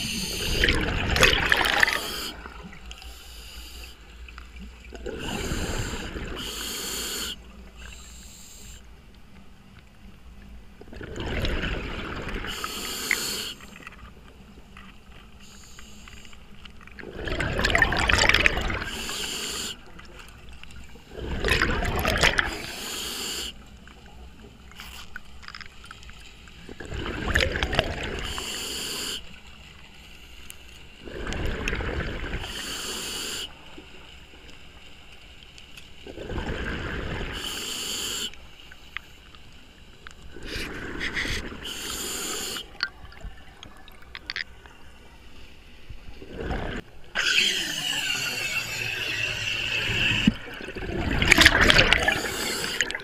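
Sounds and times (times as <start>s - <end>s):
regulator hiss on inhale: 0.0s - 0.8s, 1.8s - 4.3s, 5.2s - 9.0s, 12.4s - 13.9s, 15.3s - 16.6s, 18.8s - 19.9s, 22.4s - 23.7s, 28.2s - 31.0s, 32.4s - 33.7s, 37.3s - 39.5s, 40.4s - 42.8s, 52.0s - 53.0s.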